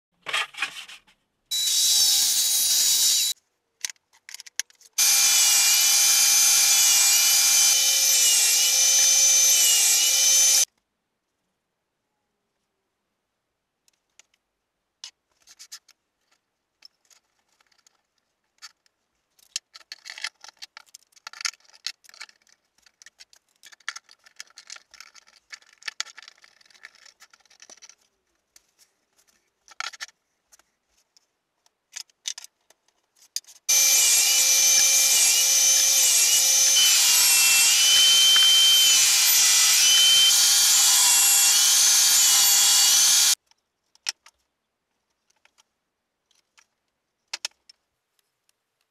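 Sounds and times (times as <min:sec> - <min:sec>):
table saw cutting: 0:01.5 - 0:03.4, 0:05.0 - 0:10.7, 0:33.7 - 0:43.4
light clicks and rubbing: 0:13.8 - 0:33.7.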